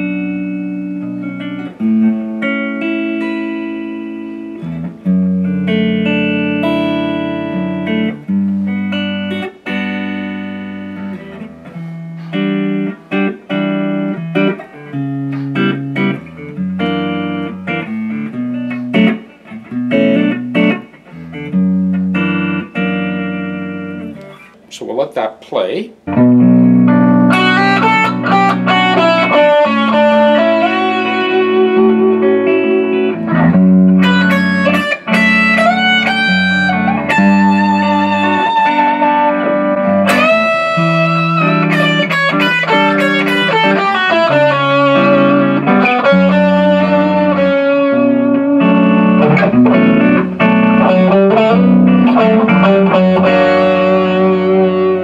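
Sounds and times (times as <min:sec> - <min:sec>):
electric guitar lead melody: 0:00.0 - 0:24.7, 0:26.0 - 0:55.0
sustained backing chords: 0:26.0 - 0:55.0.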